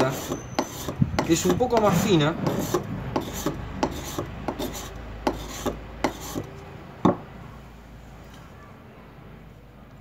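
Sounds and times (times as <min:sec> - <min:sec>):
knife scraping bamboo: 0:00.0 - 0:06.5.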